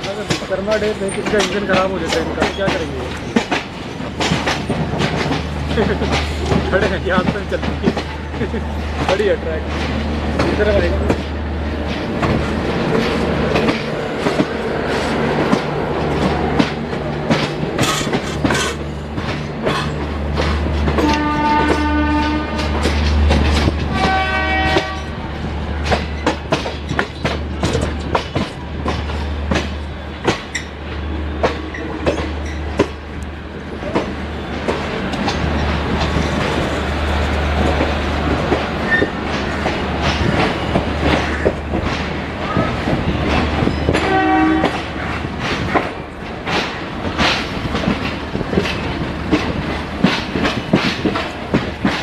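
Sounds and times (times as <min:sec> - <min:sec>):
train rumble: 0:00.0 - 0:52.0
train wheels clacking over rail joints: 0:00.0 - 0:52.0
locomotive horn: 0:21.0 - 0:22.9, 0:23.9 - 0:25.2, 0:44.0 - 0:45.0.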